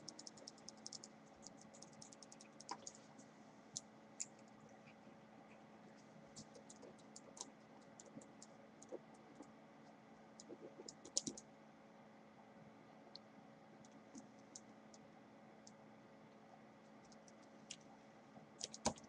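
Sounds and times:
low steady hum: 0.0s - 19.0s
small clicks and taps: 0.1s - 3.0s.

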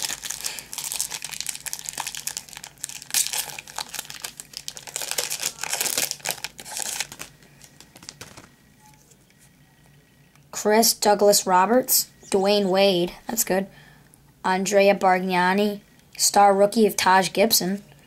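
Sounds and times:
wrapper crinkling and tearing: 0.0s - 8.5s.

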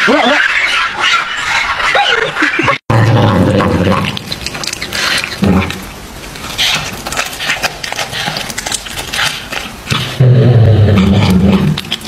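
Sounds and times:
cat crunching and chewing: 3.5s - 10.2s, 11.0s - 12.0s.

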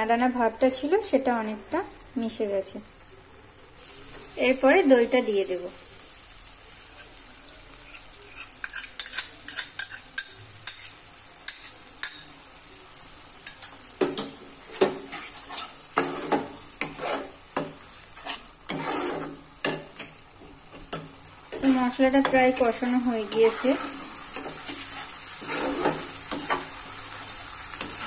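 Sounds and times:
frying sizzle: 0.0s - 28.0s
spatula scraping pan: 7.8s - 12.3s, 13.5s - 28.0s
metal spatula clinking on pan: 8.6s - 10.9s, 11.5s - 12.3s.

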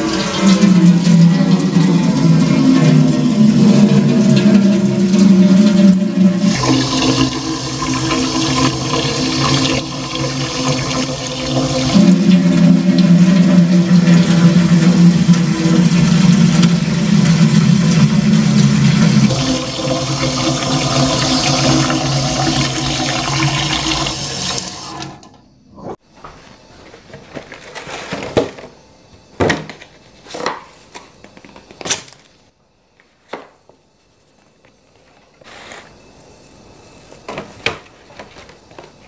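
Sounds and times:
tap water running into watering can: 0.0s - 25.4s.

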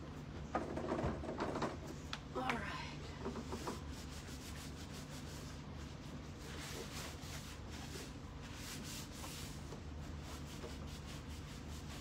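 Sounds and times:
steady low hum: 0.0s - 12.0s
cloth rubbing on wood: 3.4s - 12.0s.

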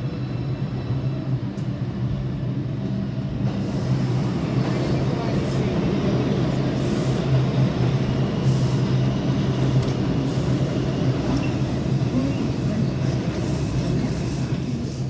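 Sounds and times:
subway train hum: 0.0s - 15.0s
subway train rumble: 0.0s - 15.0s.

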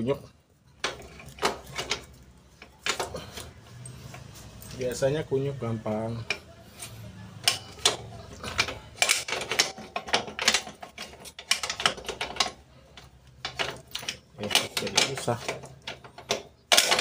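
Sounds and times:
metal spokes clicking: 5.8s - 17.0s.

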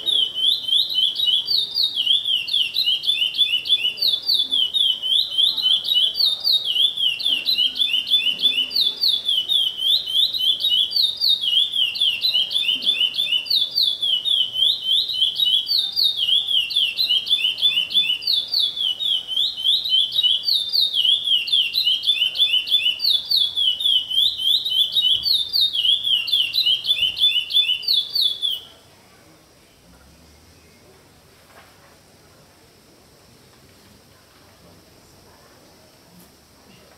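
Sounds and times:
songbird chirping: 0.0s - 28.8s.

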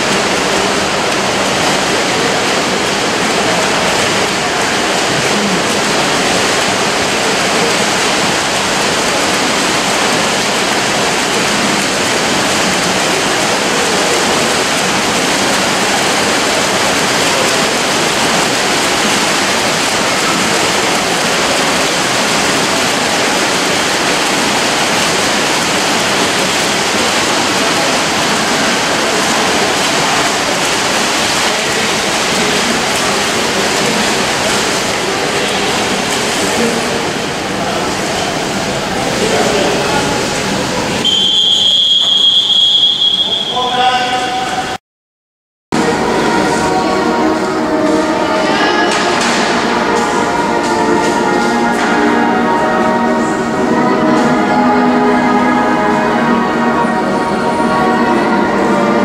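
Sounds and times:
swimmers splashing: 0.0s - 44.8s, 45.8s - 59.0s.

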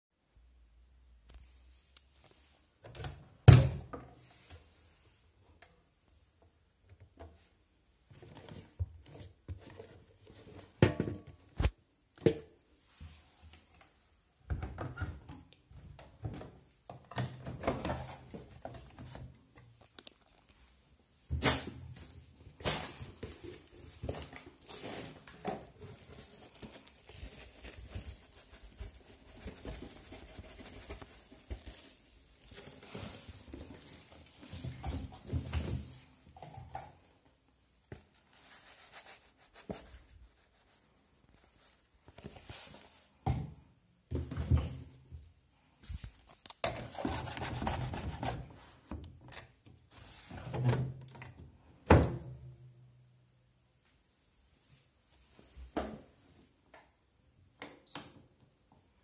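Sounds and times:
plastic bag rustling: 21.9s - 36.2s.

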